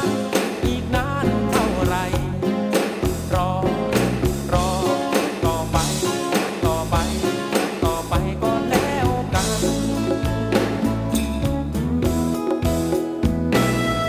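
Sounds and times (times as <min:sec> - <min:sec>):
man singing: 0:00.0 - 0:11.0
drum hits: 0:00.0 - 0:14.0
live rock band playing: 0:00.0 - 0:14.0.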